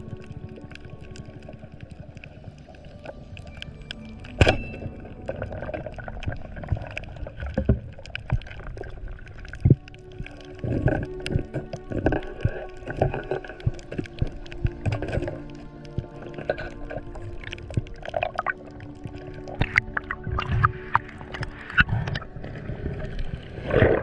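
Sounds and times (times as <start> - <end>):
underwater reef clicks and crackles: 0.0 - 24.0.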